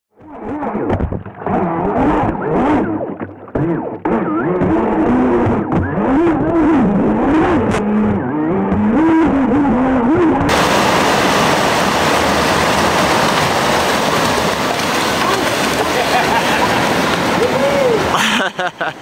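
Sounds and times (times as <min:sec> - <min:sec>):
boat motor whining: 0:01.4 - 0:18.4
river white water rushing: 0:10.5 - 0:19.0.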